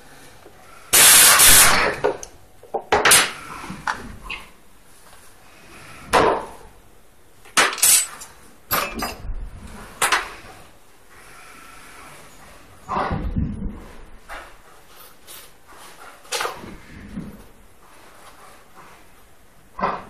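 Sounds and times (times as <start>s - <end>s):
metal and plastic parts clanking: 7.6s - 9.3s.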